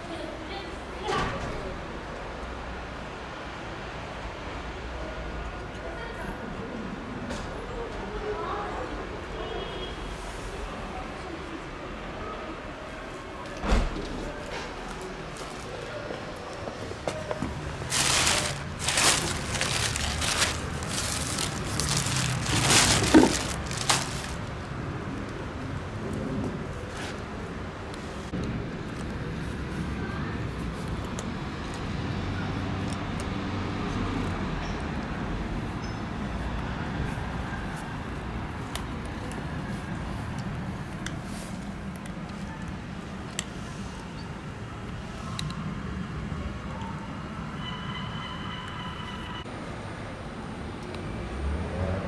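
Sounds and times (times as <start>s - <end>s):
low rumble of street traffic: 0.0s - 52.0s
plastic bag rustling: 17.4s - 24.7s
cat crunching dry kibble: 17.6s - 24.6s.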